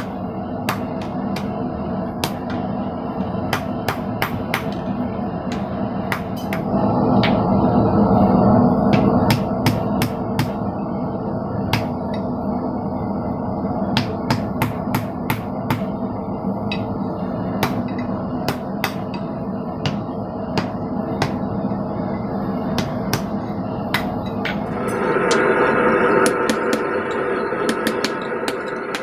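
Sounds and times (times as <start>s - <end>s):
hammer striking steel on anvil: 17.6s - 21.4s, 26.2s - 29.0s.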